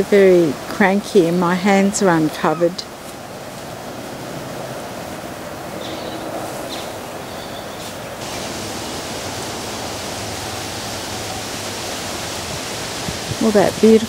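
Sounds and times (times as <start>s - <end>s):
honeybees humming: 5.8s - 14.0s.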